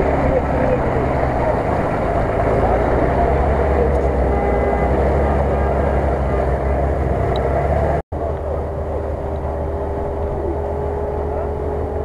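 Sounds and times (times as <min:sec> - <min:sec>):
off-road engine running: 0:00.0 - 0:12.0.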